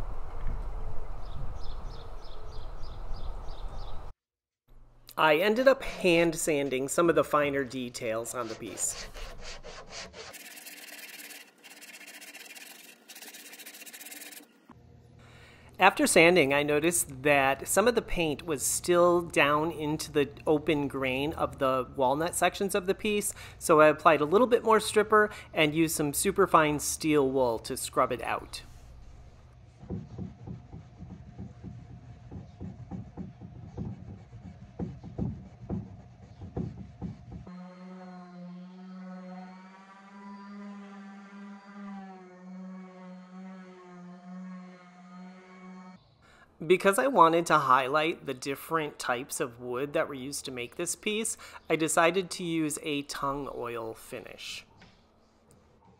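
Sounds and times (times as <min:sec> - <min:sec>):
sandpaper rubbing on wood: 0:08.2 - 0:14.5.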